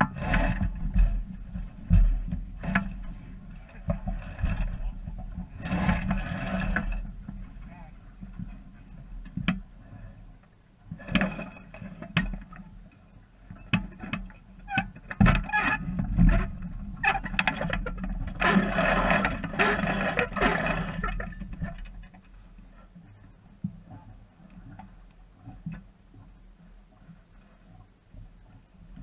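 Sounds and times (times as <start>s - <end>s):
wind noise on microphone: 0.0s - 7.7s
sailboat rigging knocking and rattling: 0.0s - 10.2s, 10.8s - 26.4s.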